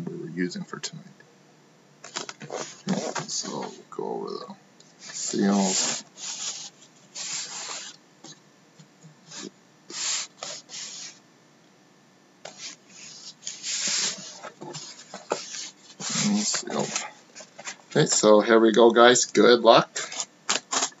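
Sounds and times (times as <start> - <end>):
hands scraping cardboard case: 12.5 - 17.8.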